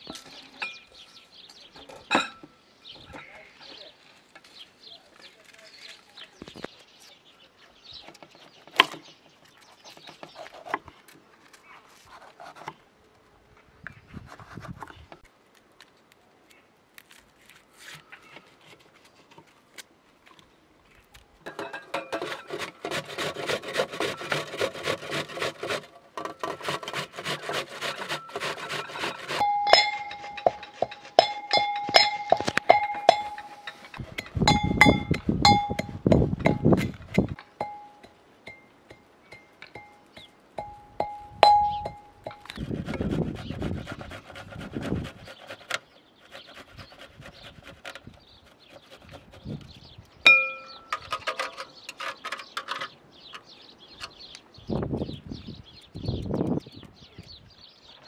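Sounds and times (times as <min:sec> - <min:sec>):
brass pestle striking mortar: 0:40.6 - 0:42.4.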